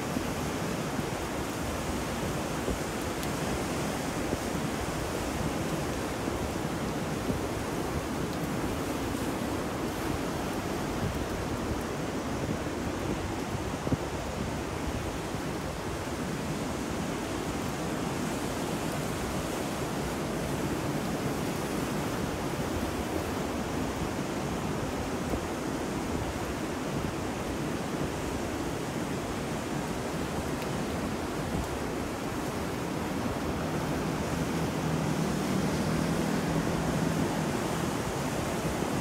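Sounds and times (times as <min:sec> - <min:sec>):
ocean surf: 0:00.0 - 0:39.0
wind: 0:00.0 - 0:39.0.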